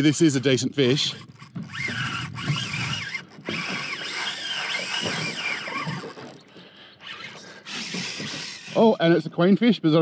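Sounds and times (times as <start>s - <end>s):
fishing reel drag whining: 0.0s - 9.1s.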